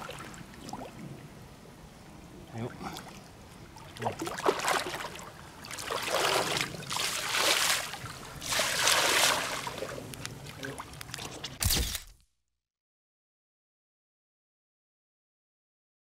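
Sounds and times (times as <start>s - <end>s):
water splashing and sloshing: 0.0s - 1.2s, 2.6s - 11.7s.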